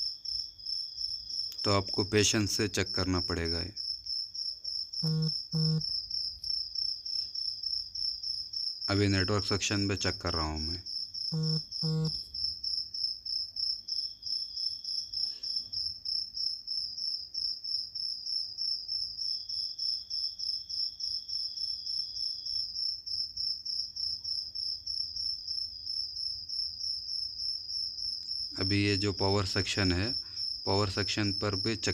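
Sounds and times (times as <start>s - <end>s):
high-pitched pulsing chirping: 5.0s - 5.8s, 11.4s - 12.2s
multimeter continuity beeps: 5.0s - 5.8s, 11.4s - 12.2s.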